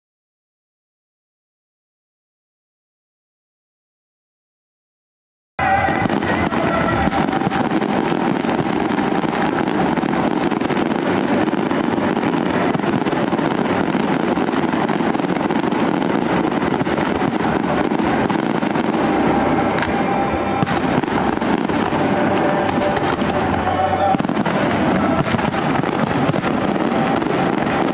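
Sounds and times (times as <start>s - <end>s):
fireworks bursting and crackling: 5.6s - 27.9s.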